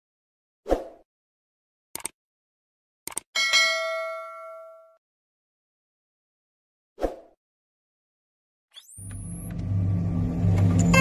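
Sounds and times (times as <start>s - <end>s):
notification bell ding: 3.4s - 5.0s.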